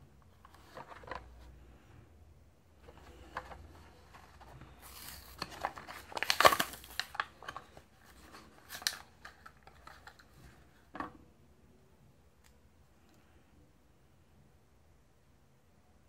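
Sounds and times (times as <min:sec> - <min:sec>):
plastic packaging crinkling: 0:02.9 - 0:10.4.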